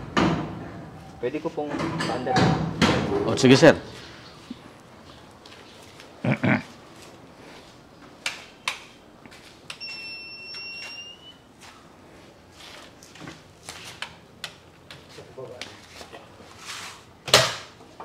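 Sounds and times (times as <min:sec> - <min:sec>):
high electronic beep: 0:09.8 - 0:11.4.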